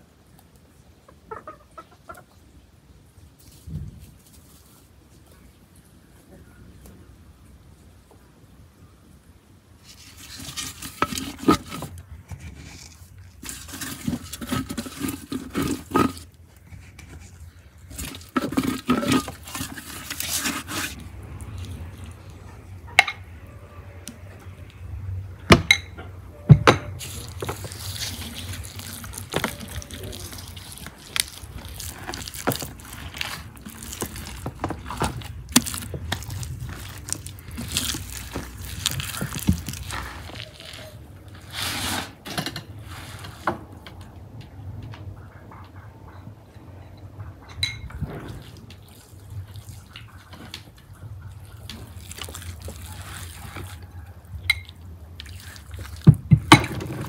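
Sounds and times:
wet handling of meat: 9.8s - 22.5s, 27.0s - 41.5s, 48.3s - 57.0s.

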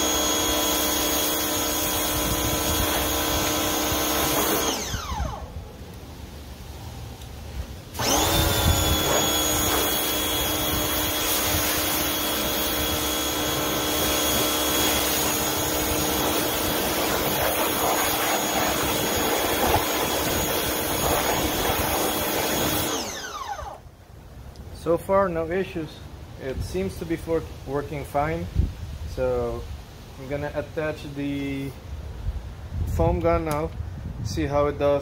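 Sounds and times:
water jet spraying: 0.0s - 4.8s, 8.0s - 23.2s
pressure washer motor whine: 0.0s - 5.7s, 7.9s - 23.9s.

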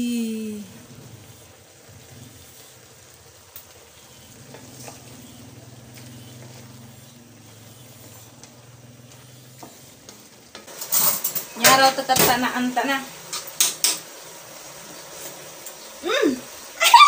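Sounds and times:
food sizzling in a wok: 0.0s - 17.0s.

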